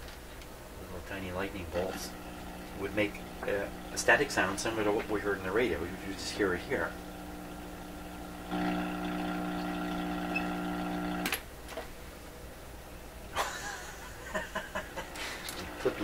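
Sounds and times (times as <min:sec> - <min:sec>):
electrical hum from speaker: 0:00.0 - 0:16.0.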